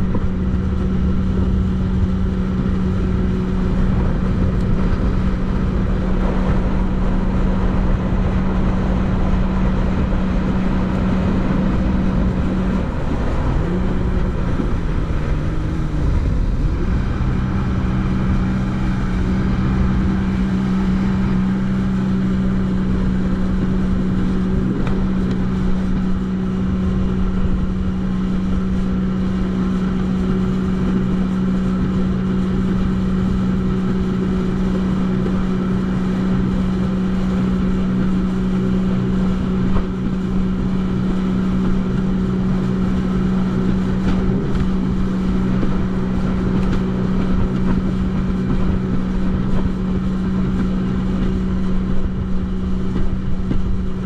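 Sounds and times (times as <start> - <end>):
jet ski engine droning: 0.0 - 54.0
rushing water noise: 0.0 - 54.0.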